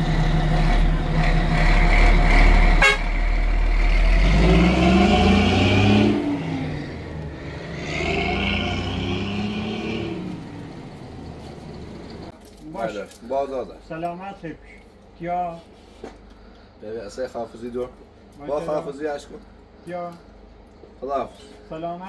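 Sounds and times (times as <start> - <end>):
truck diesel engine revving: 0.0 - 12.3.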